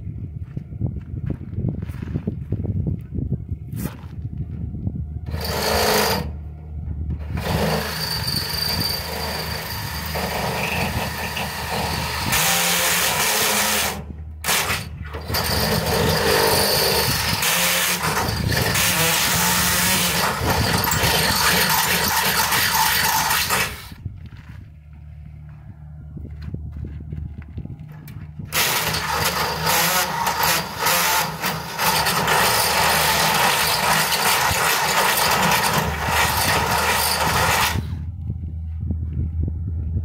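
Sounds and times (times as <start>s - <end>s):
cordless drill drilling metal: 5.3s - 6.4s, 7.2s - 24.0s, 28.5s - 38.0s.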